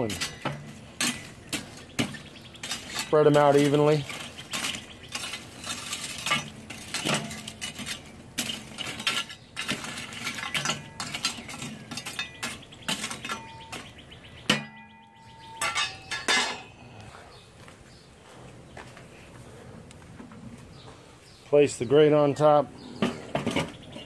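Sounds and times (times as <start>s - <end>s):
charcoal scraped in metal grill: 0.0s - 14.8s.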